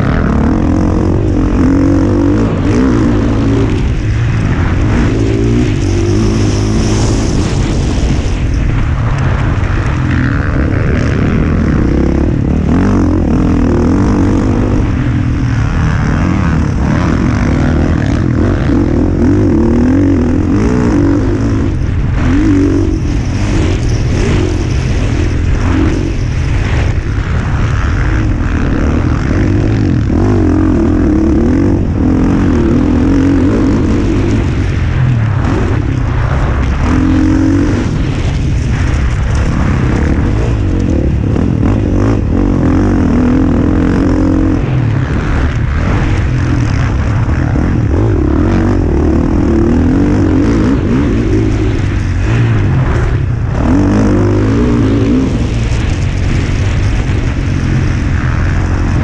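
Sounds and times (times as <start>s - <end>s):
motocross bike engine revving: 0.0s - 59.0s
steady rushing noise: 0.0s - 59.0s.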